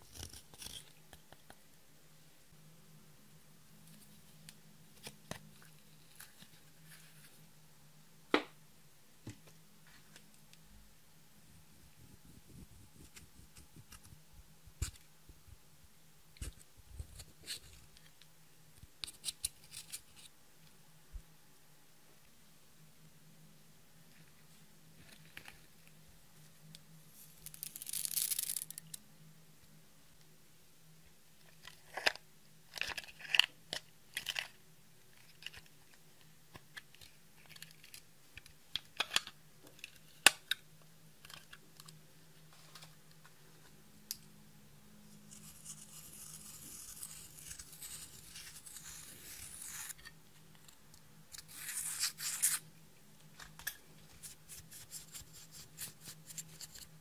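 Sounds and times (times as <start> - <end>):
brush scraping powder eyeshadow: 45.2 - 50.0, 54.2 - 56.9.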